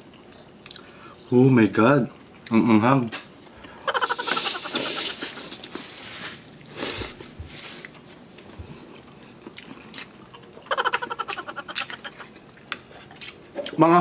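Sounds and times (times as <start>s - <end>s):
person chewing: 7.8s - 13.8s
pulsing vocal reaction: 10.6s - 12.3s.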